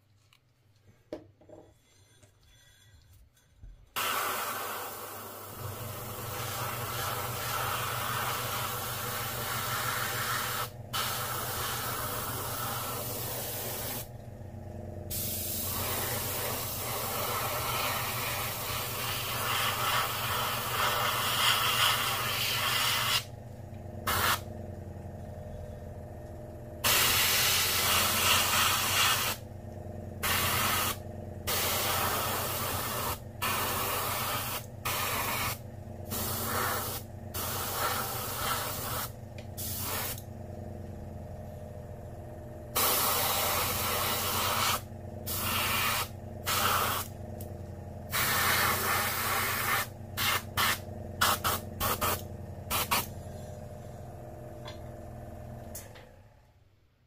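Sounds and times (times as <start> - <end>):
airbrush spraying paint: 4.0 - 14.1, 15.1 - 23.3, 24.0 - 24.5, 26.8 - 29.4, 30.2 - 40.3, 42.8 - 47.2, 48.1 - 53.2
steady low hum: 4.8 - 56.5.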